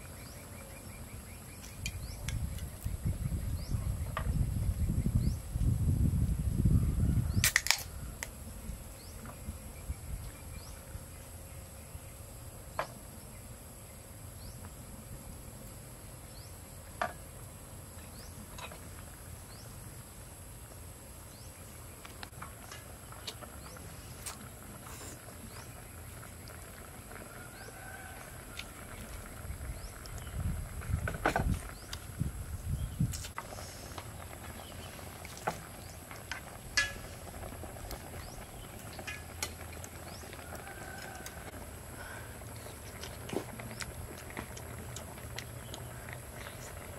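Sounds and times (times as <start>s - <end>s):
drink can opening: 7.4s - 7.9s.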